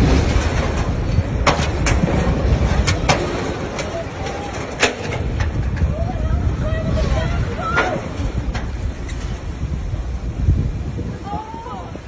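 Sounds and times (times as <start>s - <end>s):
wind rumble on microphone: 0.0s - 12.0s
faint voices: 2.8s - 8.8s.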